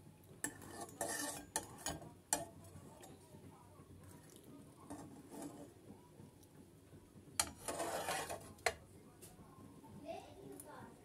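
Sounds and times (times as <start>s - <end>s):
utensil scraping cookware: 0.4s - 2.6s, 4.8s - 5.8s, 7.4s - 8.8s.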